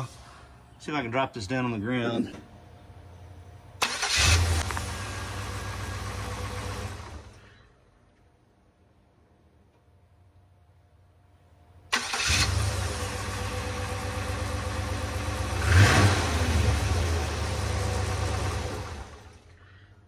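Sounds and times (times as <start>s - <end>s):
starter motor cranking: 3.8s - 6.0s
car engine idling and revving: 3.8s - 7.5s, 12.0s - 19.6s
engine winding down: 3.8s - 7.6s, 11.9s - 19.6s.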